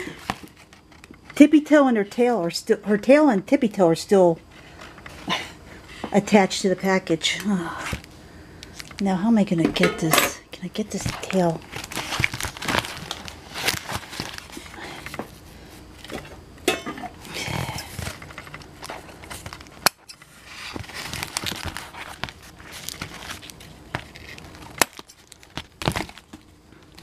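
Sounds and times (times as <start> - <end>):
packaging crinkling and rustling: 0.1 - 1.4, 7.8 - 9.1, 10.7 - 16.3, 17.6 - 27.0.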